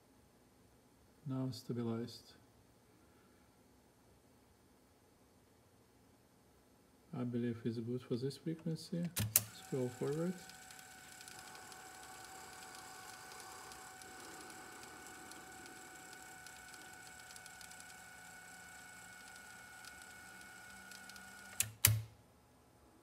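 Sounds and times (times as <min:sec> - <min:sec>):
cassette deck fast-forwarding whir: 0:09.0 - 0:22.1
cassette deck clicks: 0:21.0 - 0:22.1.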